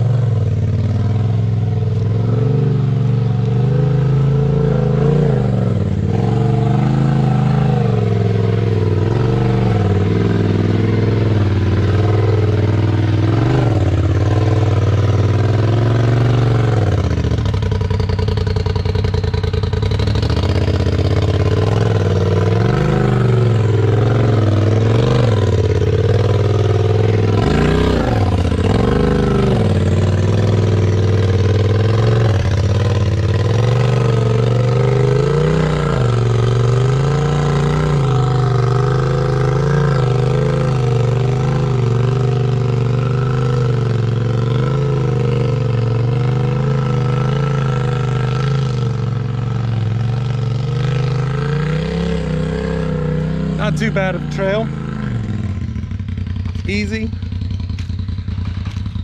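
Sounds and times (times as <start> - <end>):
off-road vehicle engine revving: 0.0 - 59.0.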